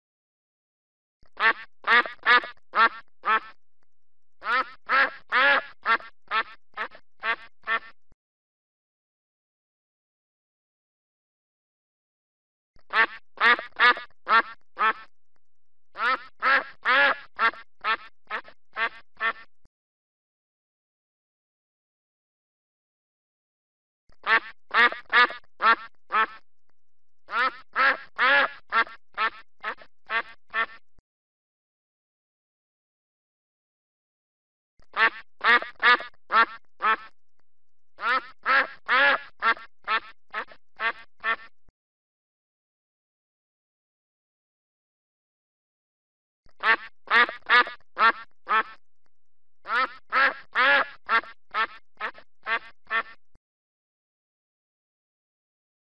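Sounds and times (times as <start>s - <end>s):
duck quacking: 1.4s - 3.6s, 4.4s - 8.0s, 12.9s - 15.1s, 16.0s - 19.5s, 24.2s - 26.4s, 27.3s - 30.8s, 34.9s - 37.1s, 38.0s - 41.5s, 46.6s - 48.8s, 49.7s - 53.2s.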